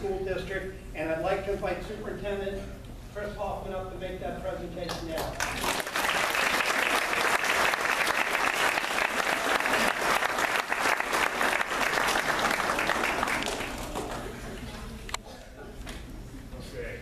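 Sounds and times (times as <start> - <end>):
audience clapping: 4.9 - 14.9.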